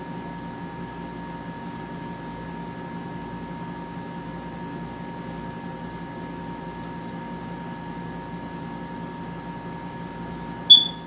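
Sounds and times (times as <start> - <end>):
mechanical hum: 0.0 - 11.0
faint high whining tones: 10.7 - 11.0
high-pitched electronic beep: 10.7 - 11.0.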